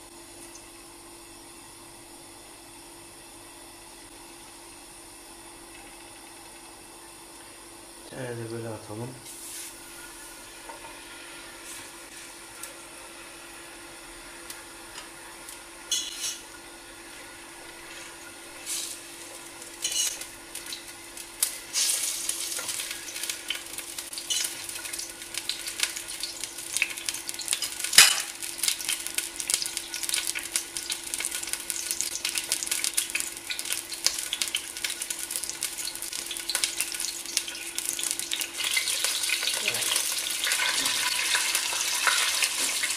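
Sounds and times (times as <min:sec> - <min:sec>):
meat sizzling in hot oil: 0:09.3 - 0:42.9.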